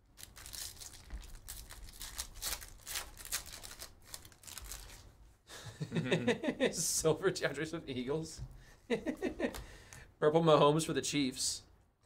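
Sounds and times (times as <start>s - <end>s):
foil wrapper crinkling: 0.2s - 5.1s
trading cards rustling: 0.2s - 5.1s.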